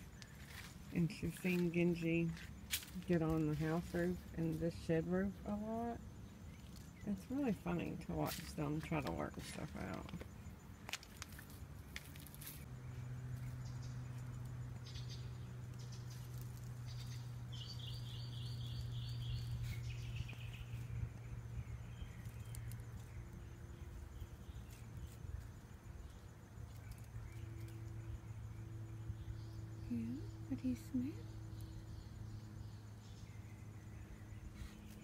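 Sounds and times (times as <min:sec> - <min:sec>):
faint rustles and clicks: 0:00.0 - 0:04.7, 0:08.2 - 0:12.7
steady low hum: 0:00.0 - 0:35.0.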